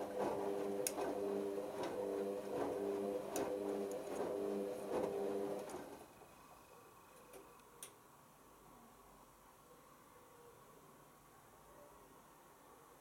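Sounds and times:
washing machine motor humming: 0.0 - 6.2.

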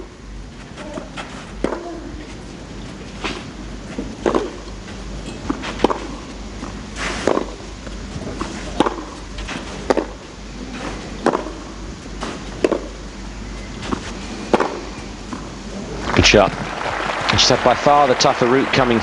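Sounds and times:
tennis ball hit by rackets: 0.9 - 2.0, 4.0 - 4.7, 5.3 - 7.6, 8.3 - 10.2, 10.8 - 13.0, 13.8 - 15.4.

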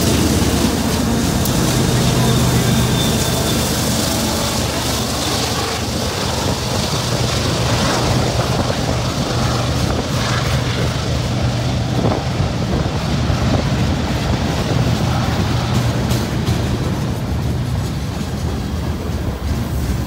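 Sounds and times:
train wheels rumbling on rail: 0.0 - 20.0
wheels clacking over rail joints: 0.0 - 20.0.

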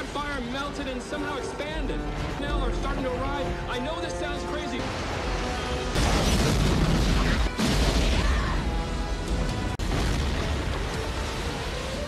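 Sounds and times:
background music: 0.0 - 12.0
fire rumbling: 4.8 - 12.0
deep rumbling boom: 6.0 - 8.7.

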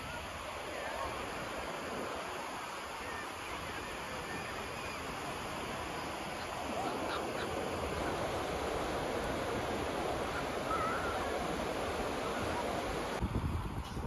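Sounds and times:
distant voices: 0.0 - 13.2
surf: 0.0 - 13.2
wind: 0.0 - 14.0
gull calls: 10.2 - 12.8.

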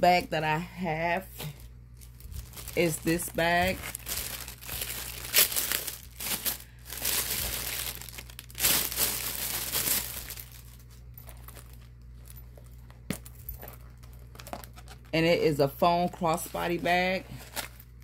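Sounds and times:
plastic bag crinkling: 1.9 - 15.2.

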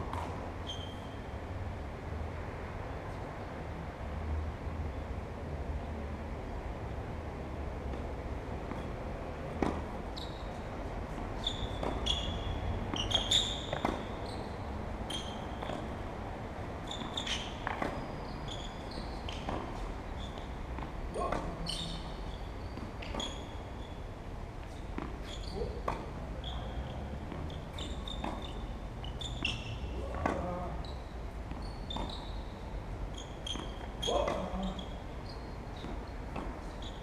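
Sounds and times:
tennis ball bouncing on court: 0.1 - 0.4, 9.5 - 10.1, 11.1 - 16.0, 16.8 - 22.0, 24.6 - 26.2, 26.8 - 30.5, 33.1 - 37.0
short high squeaks: 0.6 - 1.2, 10.1 - 10.6, 11.4 - 15.8, 16.8 - 20.5, 21.6 - 24.0, 24.7 - 25.8, 26.4 - 29.9, 30.8 - 35.9
tennis ball hit by rackets: 9.5 - 10.0.

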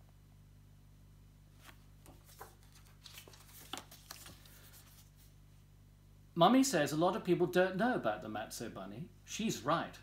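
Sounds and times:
low steady hum: 0.0 - 10.0
book rustling and tapping: 1.6 - 5.2.

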